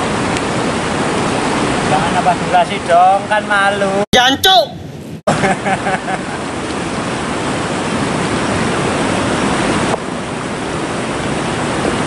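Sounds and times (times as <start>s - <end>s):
river water rushing over rocks: 0.0s - 2.6s, 6.2s - 12.0s.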